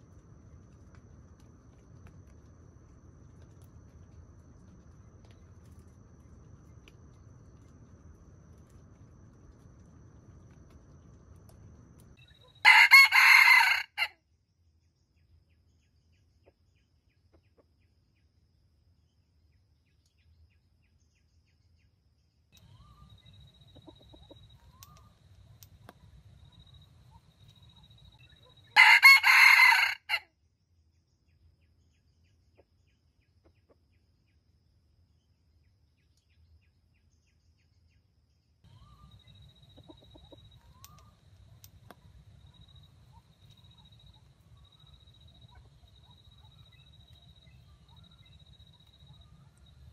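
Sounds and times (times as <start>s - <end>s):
rooster crowing: 12.5s - 14.2s, 28.7s - 30.3s.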